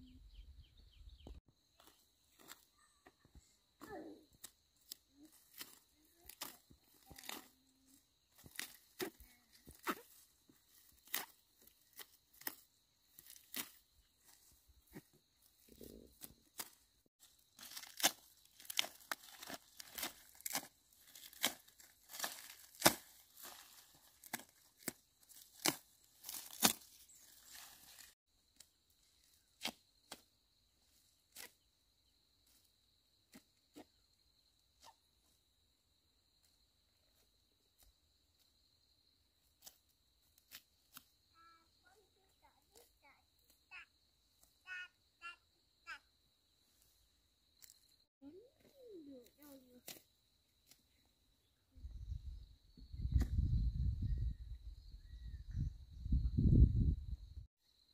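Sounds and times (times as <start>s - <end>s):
roots tearing out of dry soil: 17.4s - 28.2s.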